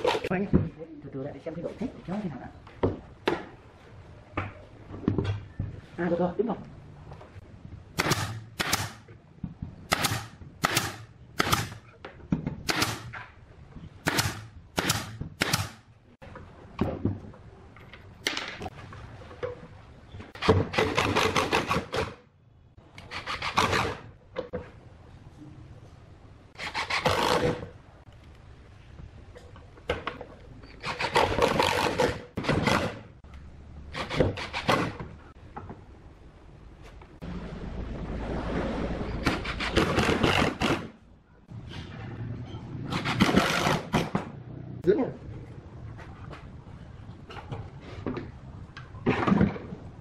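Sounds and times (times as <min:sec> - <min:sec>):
impact driver driving screws: 0:26.6 - 0:27.7.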